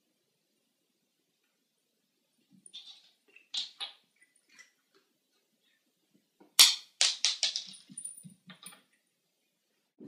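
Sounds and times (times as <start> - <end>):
cat claws scrambling on tile: 2.6 - 5.0, 6.6 - 8.9.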